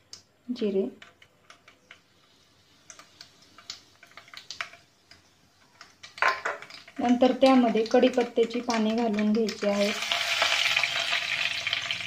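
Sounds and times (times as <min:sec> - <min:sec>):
seeds crackling in hot oil: 0:00.0 - 0:12.0.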